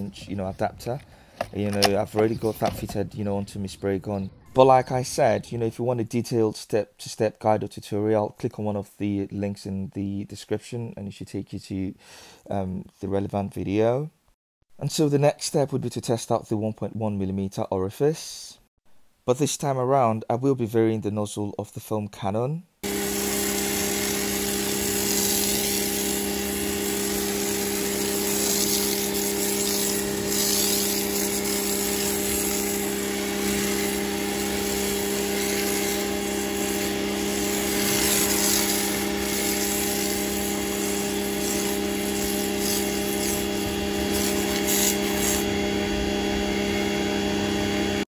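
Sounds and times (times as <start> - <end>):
foam spraying hiss: 22.8 - 45.4
pressure washer motor humming: 22.8 - 48.0.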